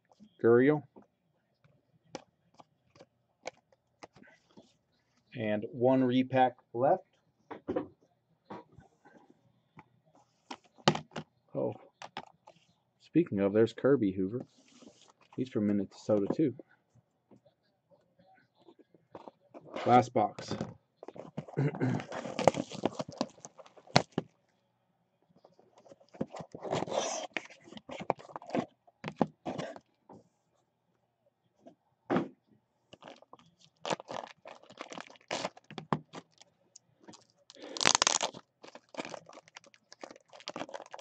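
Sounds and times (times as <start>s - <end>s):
card packaging crinkling: 21.0s - 24.2s, 25.8s - 28.7s, 33.0s - 36.4s, 37.0s - 41.0s.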